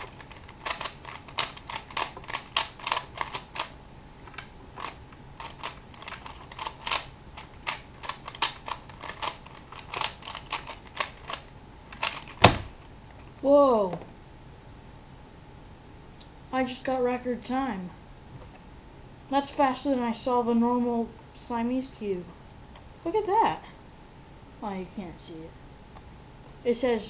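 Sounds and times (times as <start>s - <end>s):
plastic puzzle layers clacking: 0.0s - 13.3s.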